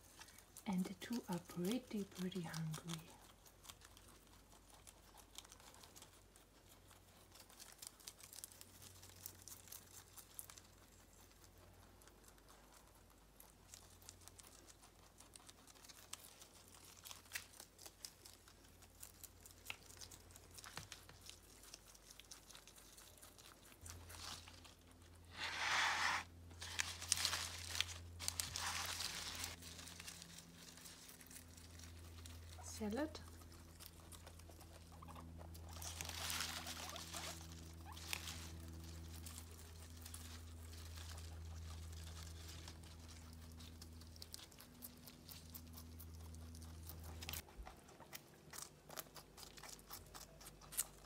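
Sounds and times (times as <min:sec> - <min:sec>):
animals crunching leaves: 0:00.0 - 0:51.0
leaves rustling in plastic colander: 0:24.0 - 0:32.8, 0:35.7 - 0:43.6.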